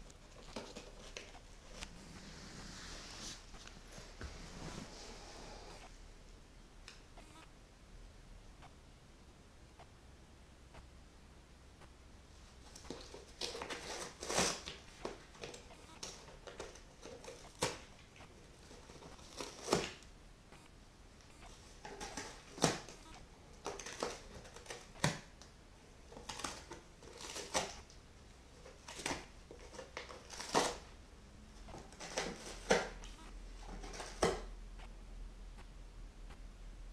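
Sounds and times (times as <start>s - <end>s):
cat chewing and rustling: 0.0s - 5.9s, 12.4s - 20.1s, 21.2s - 34.5s
cat tearing cardboard: 0.1s - 1.9s, 12.6s - 20.0s, 21.5s - 30.9s, 31.7s - 34.5s.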